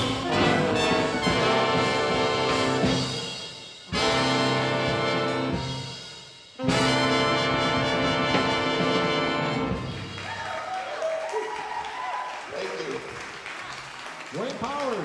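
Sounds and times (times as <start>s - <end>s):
brass section held chords: 0.0s - 10.2s.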